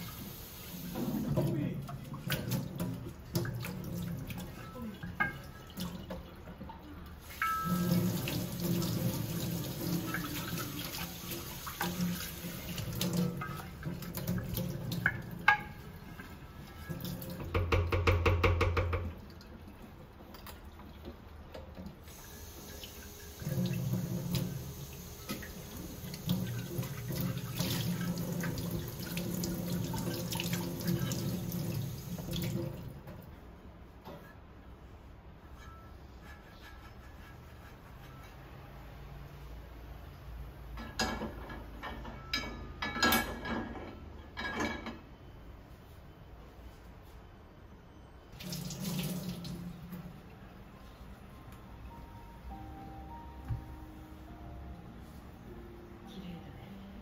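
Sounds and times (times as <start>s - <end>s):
tap water running into sink: 0.0s - 15.6s, 20.2s - 32.9s, 48.4s - 49.9s
brush scrubbing a pan: 35.6s - 38.4s.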